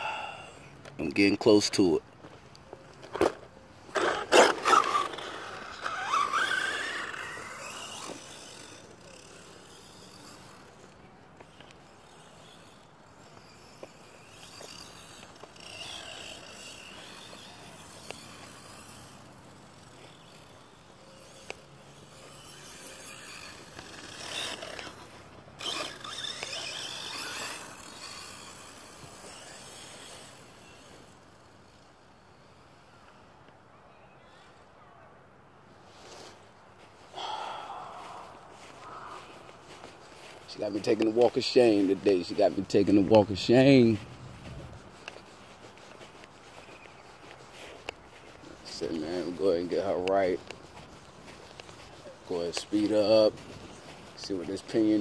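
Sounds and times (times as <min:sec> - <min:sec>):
toy truck motor whine: 0:03.9 - 0:33.4.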